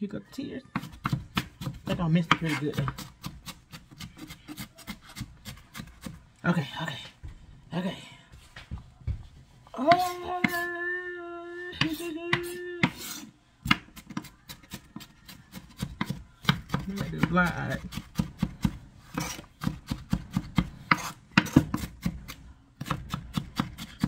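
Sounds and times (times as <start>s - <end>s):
knife chopping on cutting board: 0.8s - 6.2s, 11.8s - 24.0s.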